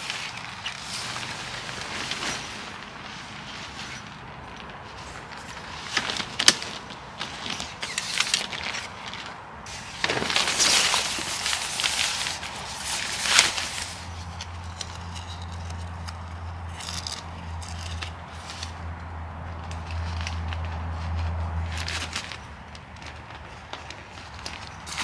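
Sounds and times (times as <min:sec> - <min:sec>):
nylon fabric rustling: 0:00.0 - 0:14.7.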